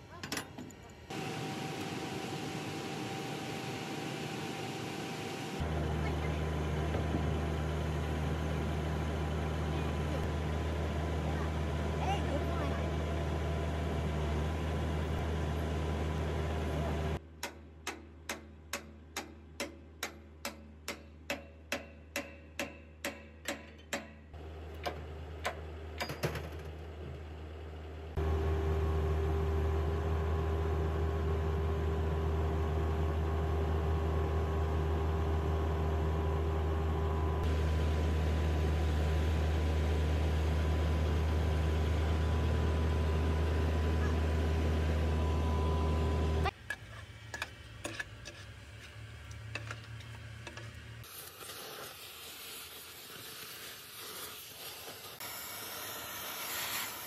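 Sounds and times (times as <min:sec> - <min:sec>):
diesel engine running: 0:00.8 - 0:17.2, 0:24.4 - 0:51.0.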